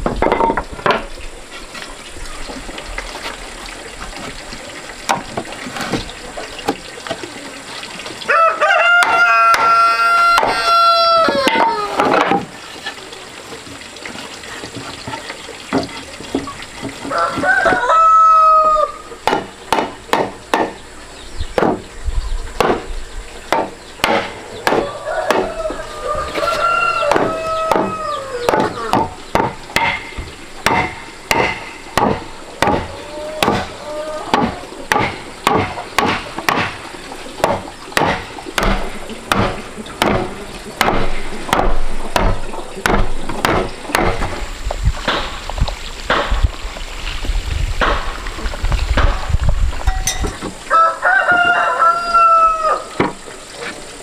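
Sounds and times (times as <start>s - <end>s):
rooster crowing: 8.3s - 12.0s, 17.1s - 19.1s, 24.7s - 29.0s, 50.7s - 53.0s
wooden mallet knocking wood: 19.2s - 20.8s, 21.6s - 21.8s, 22.6s - 22.9s, 23.5s - 25.6s, 27.1s - 33.7s.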